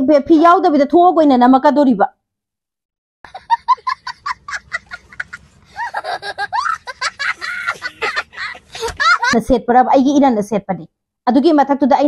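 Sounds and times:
young child laughing: 3.3 - 9.4.

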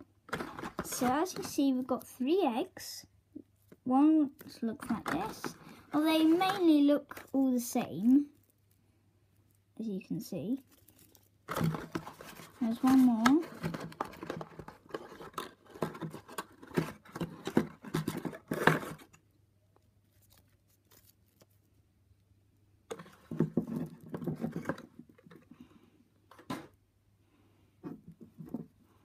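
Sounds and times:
foil wrappers rustling: 10.4 - 17.4.

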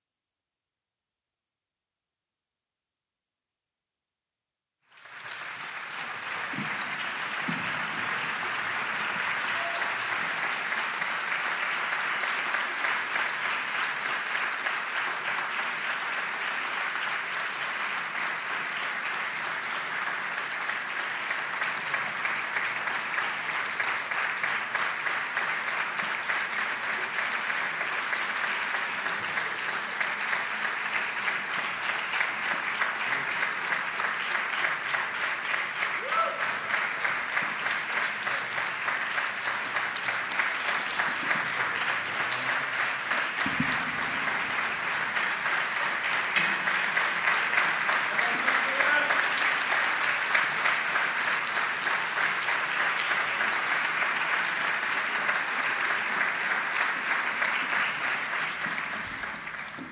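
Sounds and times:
audience applauding: 4.9 - 59.9.

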